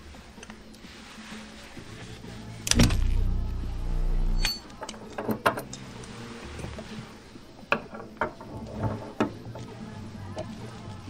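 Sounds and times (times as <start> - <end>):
mechanical whir: 2.6 - 4.5.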